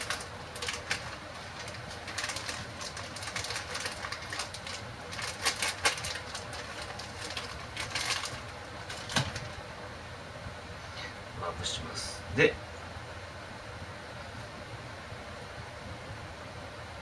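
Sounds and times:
plastic bag crinkling: 0.0 - 9.6
steady low hum: 0.0 - 17.0.

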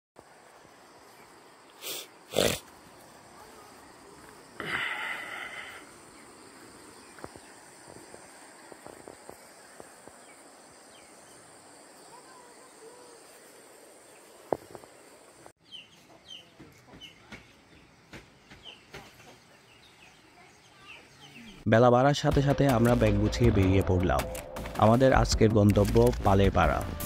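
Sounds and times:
high insect drone: 0.2 - 15.5
birds and fowl chirping: 15.6 - 21.6.

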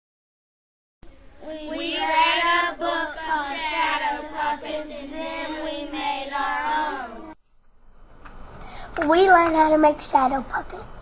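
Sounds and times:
child singing held notes: 1.1 - 7.4.

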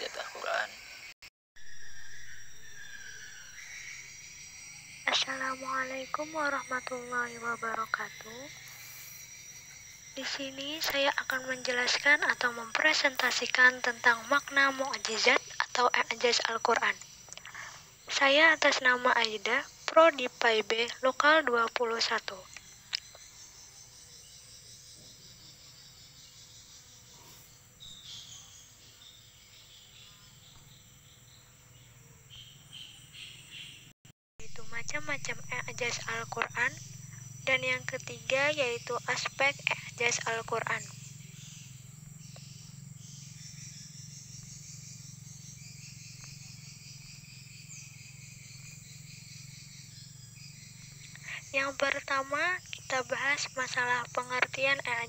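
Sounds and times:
background hiss: 8.0 - 15.3.

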